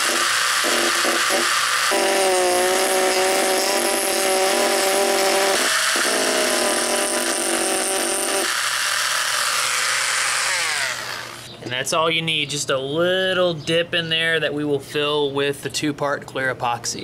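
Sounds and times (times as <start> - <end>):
rotary tool grinding plastic: 0.0 - 11.5.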